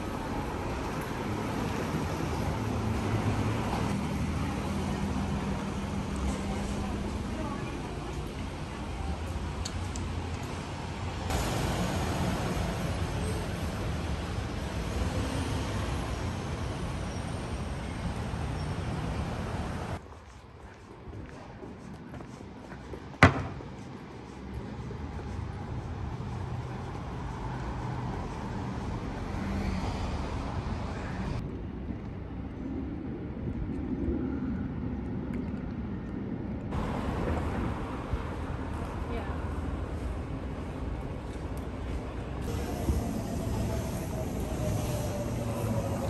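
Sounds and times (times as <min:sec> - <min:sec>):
passing vehicles: 0:00.0 - 0:20.1, 0:22.0 - 0:46.0.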